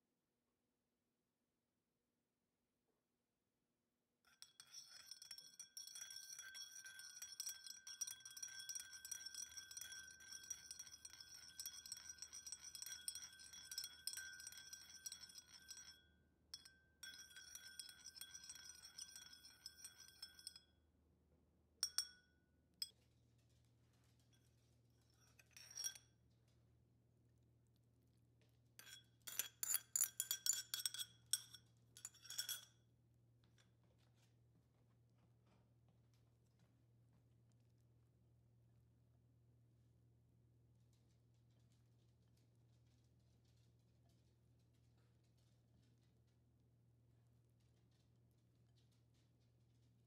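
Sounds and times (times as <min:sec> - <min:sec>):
teaspoon clinking in ceramic bowl: 0:04.4 - 0:20.6, 0:21.8 - 0:22.3, 0:25.2 - 0:26.0, 0:28.8 - 0:32.7.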